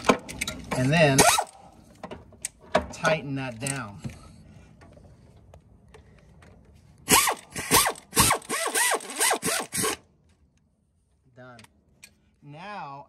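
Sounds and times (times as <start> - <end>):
power ratchet whirring: 7.1 - 10.0.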